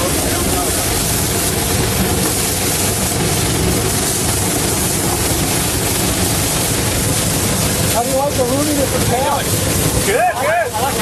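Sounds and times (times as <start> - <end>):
steam locomotive running: 0.0 - 11.0.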